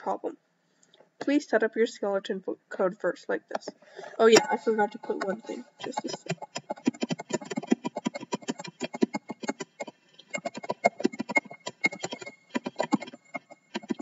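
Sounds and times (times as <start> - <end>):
fast typing on keyboard: 4.2 - 14.0.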